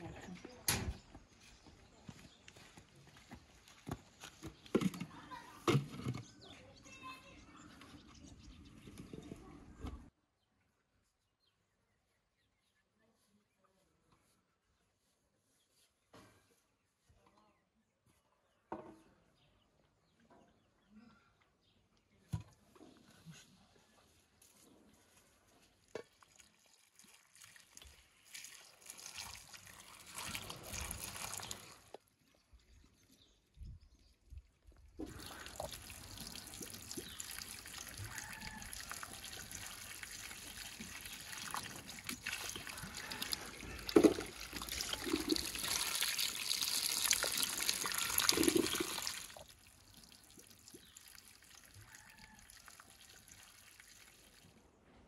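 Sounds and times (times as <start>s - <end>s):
hose water into metal basin: 25.6s - 32.0s, 35.0s - 54.5s.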